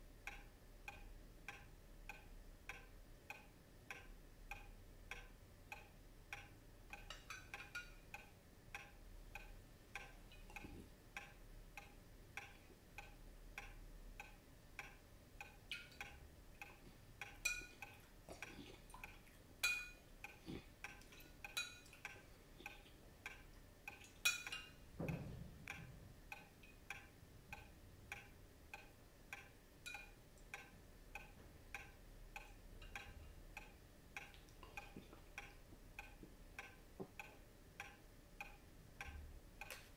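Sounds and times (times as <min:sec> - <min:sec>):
clock ticking: 0:00.0 - 0:39.9.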